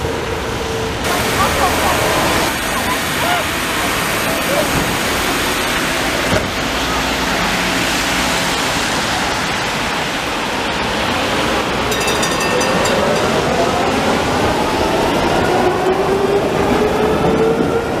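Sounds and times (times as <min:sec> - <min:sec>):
tram wheels rumbling: 0:00.0 - 0:18.0.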